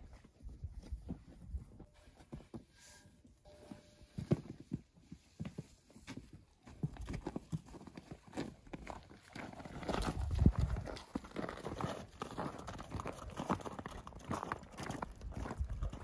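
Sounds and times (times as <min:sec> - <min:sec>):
horse hooves on packed dirt: 0:04.1 - 0:16.0.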